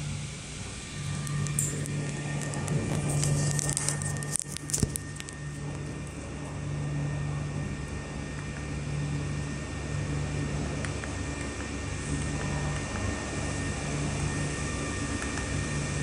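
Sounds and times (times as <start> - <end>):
cooling fan humming: 0.0 - 16.0
handling clicks and rustles: 1.1 - 6.2.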